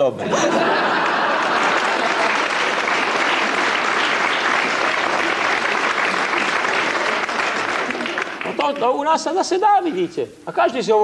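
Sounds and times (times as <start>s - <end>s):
audience applauding: 0.5s - 9.1s.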